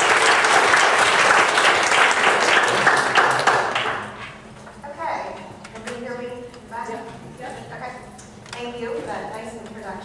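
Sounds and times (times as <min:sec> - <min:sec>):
audience applauding: 0:00.0 - 0:04.2.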